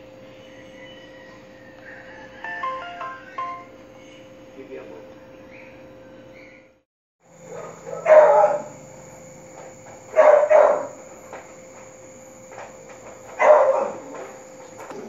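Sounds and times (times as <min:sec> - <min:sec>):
small dog barking: 0:07.4 - 0:08.8, 0:10.1 - 0:11.0, 0:13.4 - 0:14.3.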